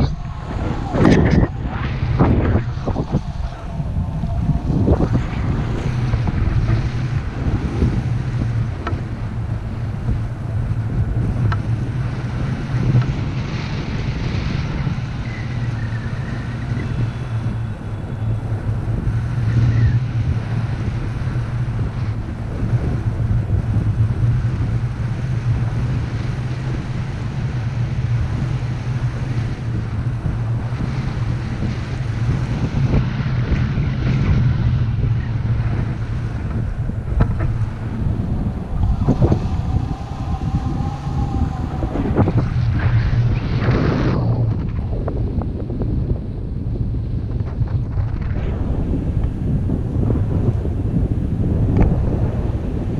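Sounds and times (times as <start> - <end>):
wind buffeting microphone: 0.0 - 52.9.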